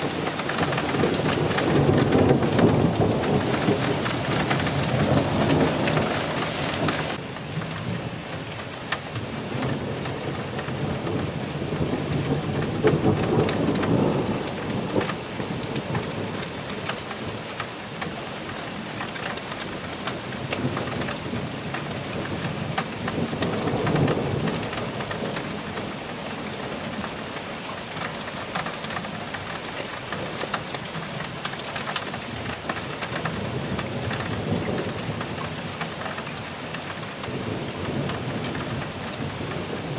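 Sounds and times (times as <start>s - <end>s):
thunder rumbling: 0.0s - 7.2s, 9.1s - 17.4s, 20.3s - 27.2s
rain pattering: 0.0s - 39.9s.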